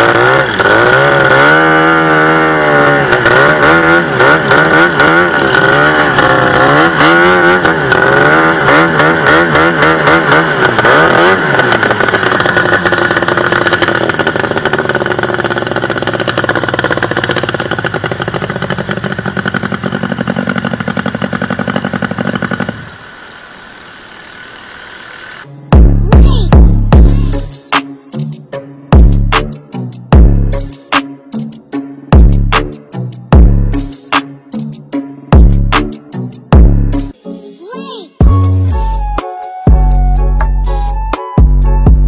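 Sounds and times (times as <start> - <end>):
racing boat engine running hard: 0.0 - 25.5.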